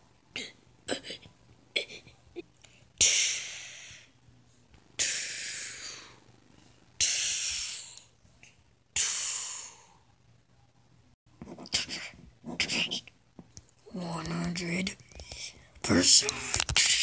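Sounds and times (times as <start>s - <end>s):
person hissing breathily: 3.0s - 4.2s, 5.0s - 6.2s, 7.0s - 8.1s, 9.0s - 10.0s.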